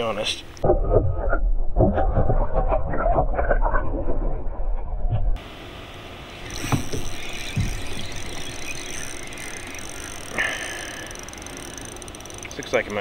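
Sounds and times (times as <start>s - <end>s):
water against boat: 6.4s - 13.0s.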